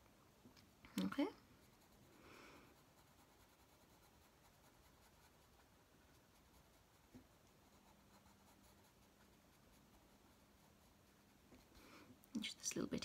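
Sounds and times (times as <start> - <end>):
coloured pencil scratching on paper: 1.5 - 11.8.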